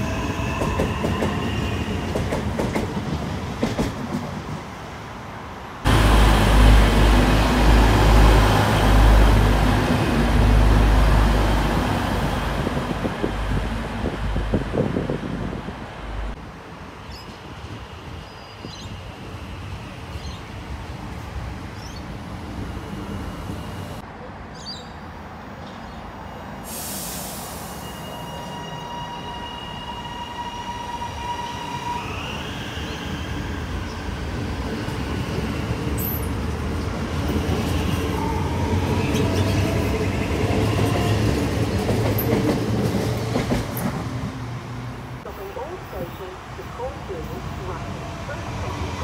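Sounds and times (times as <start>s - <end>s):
train rumble: 0.0s - 5.0s, 5.8s - 16.8s, 33.4s - 49.0s.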